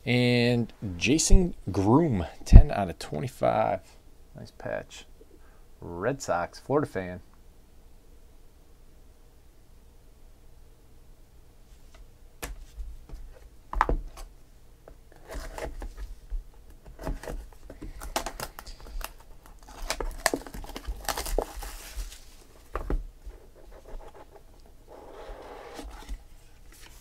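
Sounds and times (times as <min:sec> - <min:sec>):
crinkling and rustling: 0:14.9 - 0:27.0.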